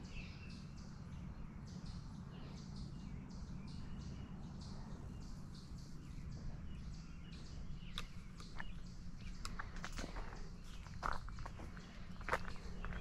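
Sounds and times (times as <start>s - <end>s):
birds chirping: 0.0s - 13.0s
low steady rumble: 0.0s - 13.0s.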